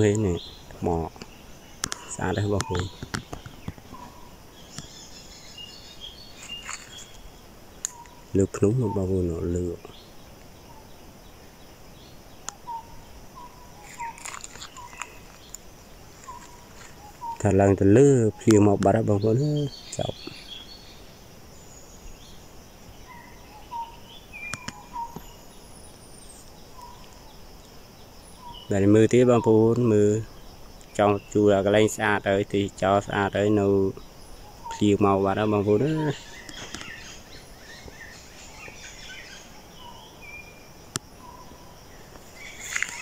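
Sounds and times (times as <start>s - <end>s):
bird calls and chirps: 0.0s - 43.0s
faint steady hiss: 0.0s - 43.0s
insects humming: 0.0s - 43.0s
sharp clicks: 1.2s - 3.8s.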